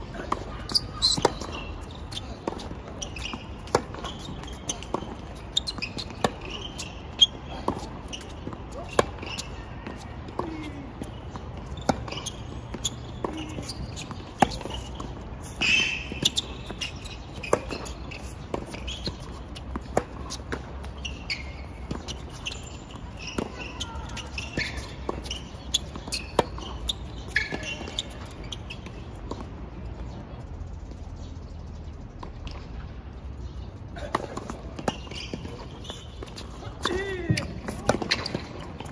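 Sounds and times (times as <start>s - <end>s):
tennis balls struck and bouncing: 0.1s - 30.1s, 33.4s - 38.9s
short high squeaks: 0.2s - 9.6s, 11.7s - 19.4s, 20.2s - 28.9s, 34.9s - 38.6s.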